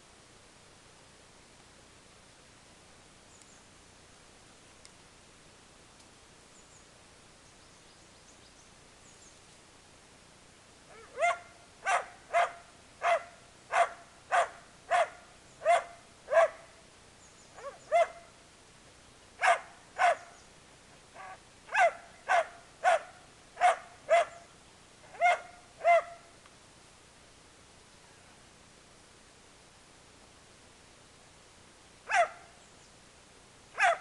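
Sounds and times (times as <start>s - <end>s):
dog barking angrily: 10.9s - 16.6s, 19.4s - 20.3s, 21.2s - 24.4s, 25.1s - 26.2s, 32.1s - 32.4s, 33.8s - 34.0s.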